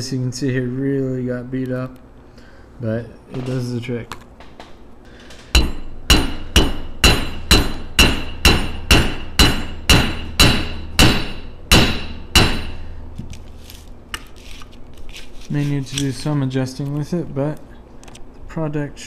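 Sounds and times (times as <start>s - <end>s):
hammer striking metal on anvil: 5.6s - 13.0s.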